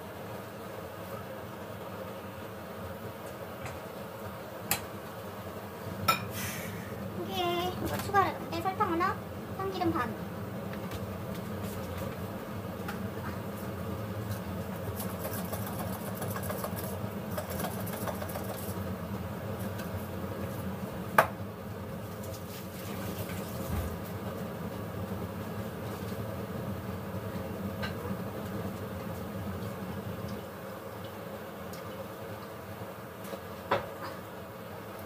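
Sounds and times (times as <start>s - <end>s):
faint hum: 0.0s - 35.0s.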